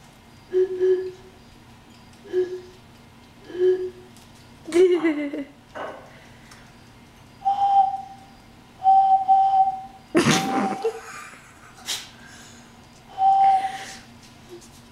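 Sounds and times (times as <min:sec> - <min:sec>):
bottle blown like a whistle: 0:00.5 - 0:01.2.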